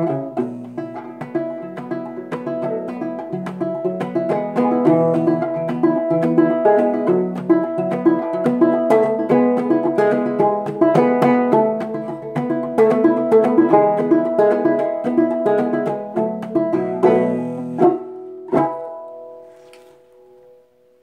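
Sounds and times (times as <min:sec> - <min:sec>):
banjo plucked notes and chords: 0:00.0 - 0:21.0.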